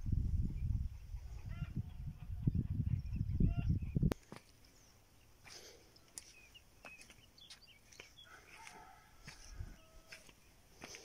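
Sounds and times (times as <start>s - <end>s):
wind buffeting microphone: 0.0s - 4.2s
birds chirping: 0.5s - 11.0s.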